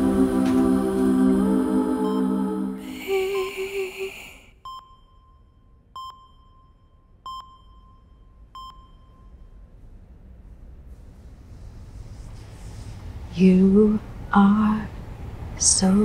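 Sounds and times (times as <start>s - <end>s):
hospital monitor beeps: 4.6s - 9.5s.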